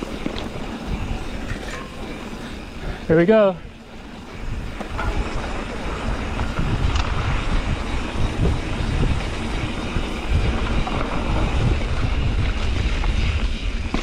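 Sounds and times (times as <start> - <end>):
bike knocking and rattling: 0.0 - 14.0
bike tyres rumbling on dirt: 0.0 - 14.0
wind on microphone: 4.3 - 14.0.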